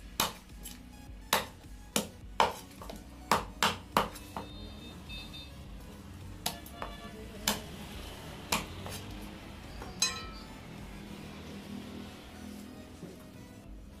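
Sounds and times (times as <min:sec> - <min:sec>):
metallic ring of blade: 0:10.0 - 0:10.5.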